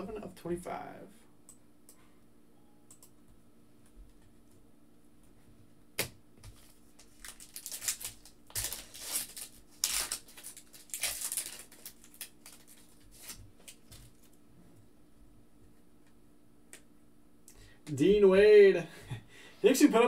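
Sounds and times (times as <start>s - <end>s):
foil wrappers tearing and crinkling: 6.5s - 14.4s.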